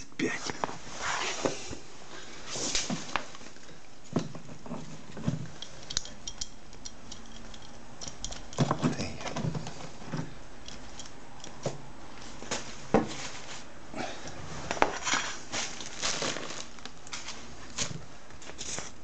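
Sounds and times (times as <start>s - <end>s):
rubbish crinkling and clicking: 14.7s - 19.0s.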